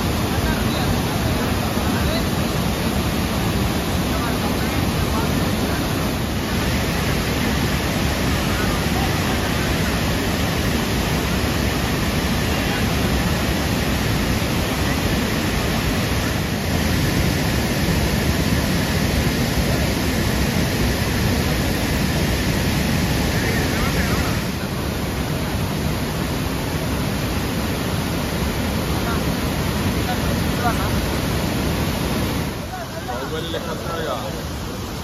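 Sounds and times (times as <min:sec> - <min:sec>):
waterfall rushing: 0:00.0 - 0:35.0.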